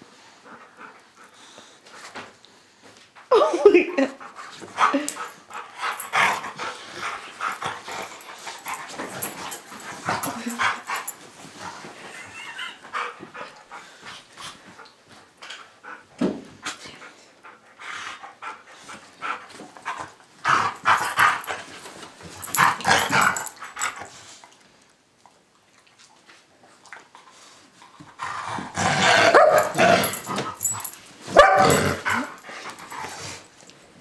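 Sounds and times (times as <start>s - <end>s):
dogs growling and barking: 4.8s - 11.8s, 19.8s - 21.7s, 22.4s - 24.1s, 28.2s - 33.4s.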